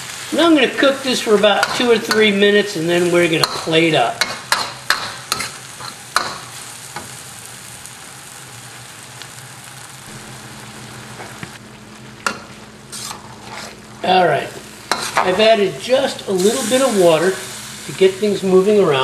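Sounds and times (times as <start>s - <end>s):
food sizzling in a wok: 0.0s - 19.0s
low steady hum: 7.3s - 19.0s
metal spatula scraping pan: 12.3s - 13.8s, 14.9s - 15.4s.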